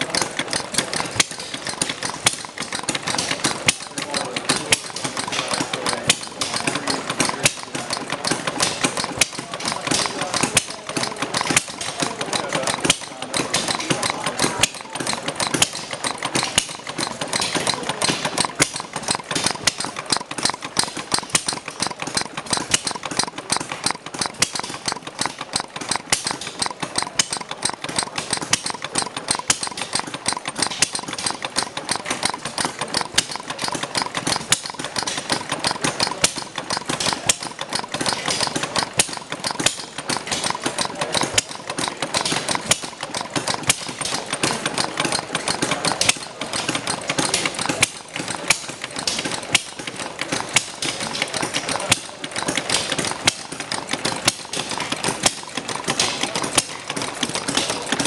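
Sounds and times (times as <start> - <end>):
small gasoline engine running: 0.0 - 58.0.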